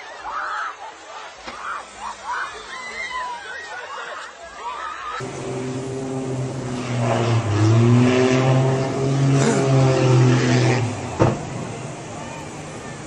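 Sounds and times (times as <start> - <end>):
propeller aircraft engine droning: 5.2 - 13.0.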